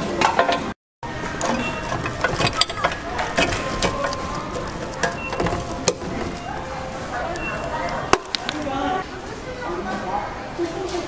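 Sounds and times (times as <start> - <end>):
lollipops clattering in plastic chute: 1.4 - 8.8.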